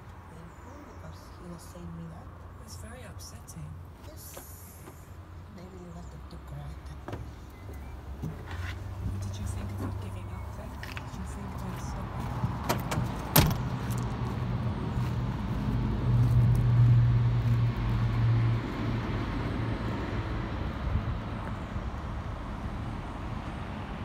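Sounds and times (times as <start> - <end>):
cab door shutting: 12.6 - 13.7.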